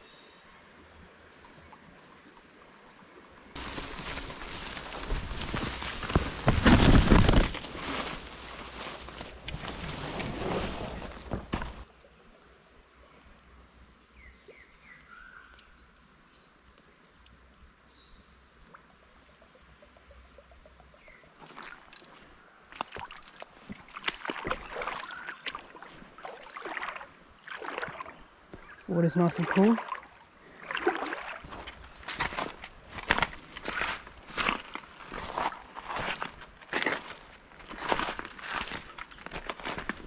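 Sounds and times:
leaves and twigs rustling: 0:03.6 - 0:11.9, 0:21.4 - 0:40.0
shallow water splashing: 0:22.8 - 0:37.1.

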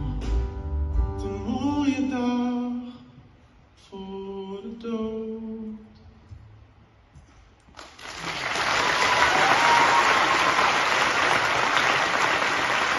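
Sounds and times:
large audience applauding: 0:07.8 - 0:12.9.

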